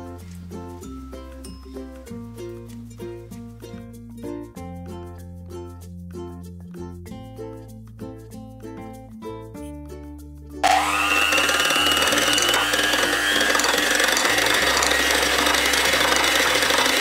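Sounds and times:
electric hand mixer whirring: 10.6 - 17.0.

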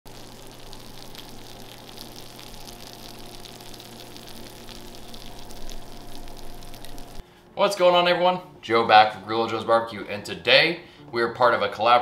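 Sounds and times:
food sizzling in a pan: 0.1 - 7.2
faint steady hum: 0.1 - 7.6.

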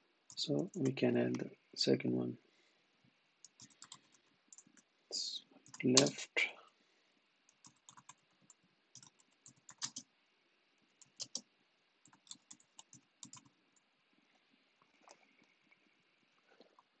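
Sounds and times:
computer keyboard typing: 3.4 - 4.8, 5.6 - 6.1, 7.5 - 10.1, 11.0 - 11.4, 12.0 - 13.5.

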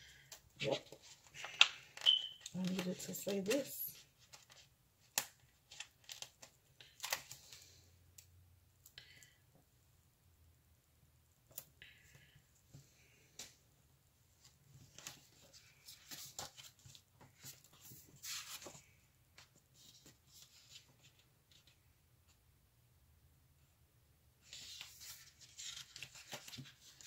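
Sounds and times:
paper rustling and clicks: 0.2 - 7.6, 24.5 - 27.0.

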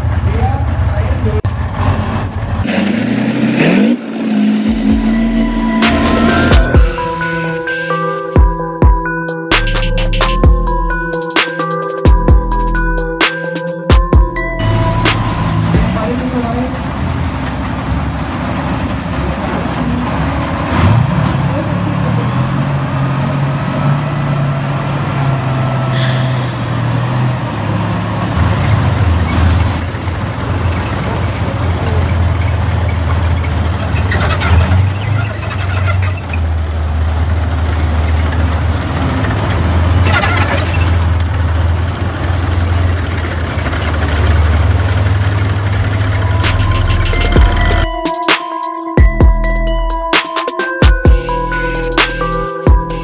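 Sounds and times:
heavy diesel engine drone: 0.0 - 11.2, 12.2 - 48.2, 51.1 - 53.0
short loud hisses: 25.9 - 27.2.

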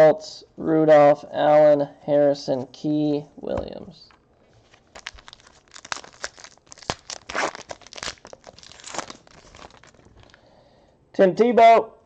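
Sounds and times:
foil wrapper crinkling and tearing: 4.6 - 10.4.

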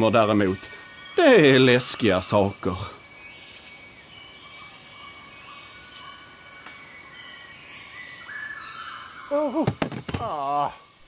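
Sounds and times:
high-pitched insect drone: 0.0 - 11.0.

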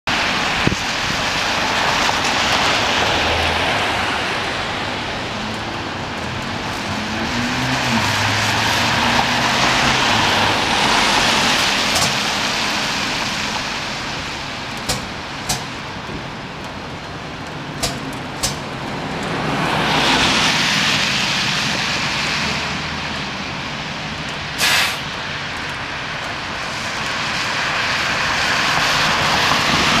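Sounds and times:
tyre hiss of passing vehicles: 0.2 - 14.4, 19.3 - 30.0
sharp clicks: 17.4 - 19.4
air hiss burst: 24.6 - 25.1.

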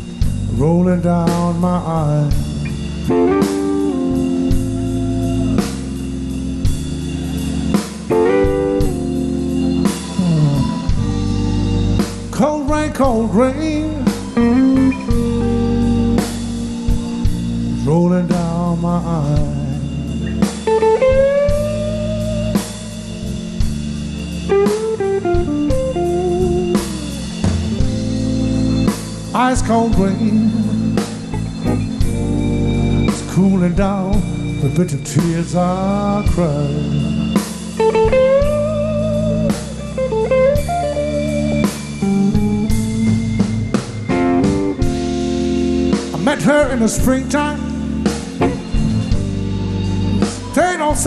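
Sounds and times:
blues band playing: 0.0 - 51.0
electric guitar fill: 0.0 - 51.0
person singing: 0.5 - 6.0, 9.8 - 11.2, 12.3 - 16.3, 17.8 - 20.2, 29.3 - 31.2, 33.1 - 38.0, 46.1 - 47.8, 50.2 - 51.0.

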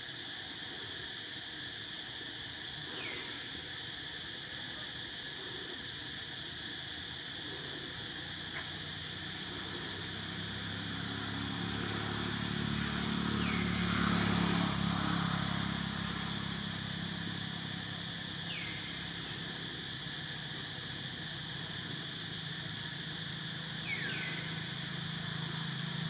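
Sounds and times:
insects droning: 0.0 - 26.0
vehicle engine passing by: 8.2 - 26.0.

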